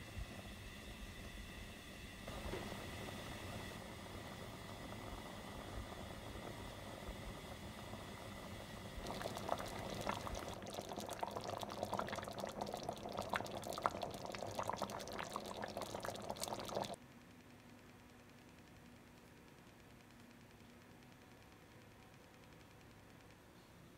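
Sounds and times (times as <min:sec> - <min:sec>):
porridge bubbling in a pot: 0:00.0 - 0:17.0.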